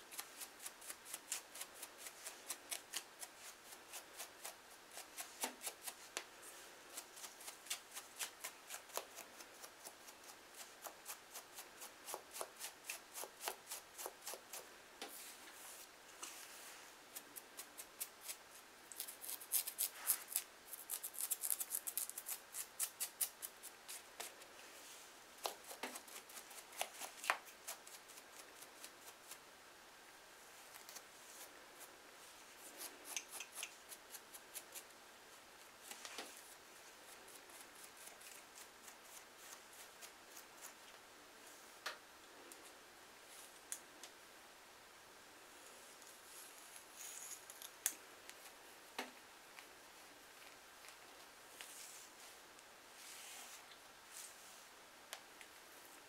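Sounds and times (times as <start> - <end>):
comb scratching through hair: 0.0 - 29.4, 32.2 - 34.9, 35.8 - 41.0, 46.0 - 47.8.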